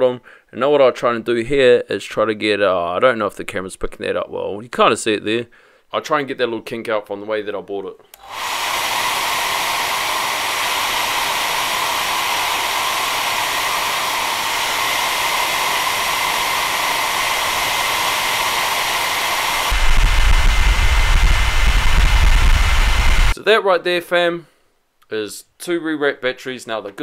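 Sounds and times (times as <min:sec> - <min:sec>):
hair dryer blowing: 0:08.2 - 0:23.4
loud low rumble: 0:19.7 - 0:23.3.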